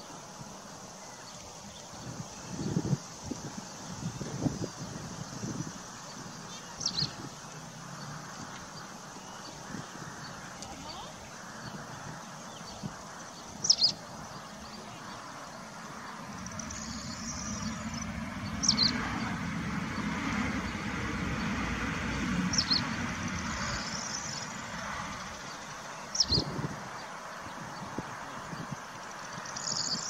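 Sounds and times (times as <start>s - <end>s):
traffic rumble: 0.2s - 30.0s
high bird chirps: 12.6s - 15.3s, 16.4s - 19.0s, 22.5s - 26.5s.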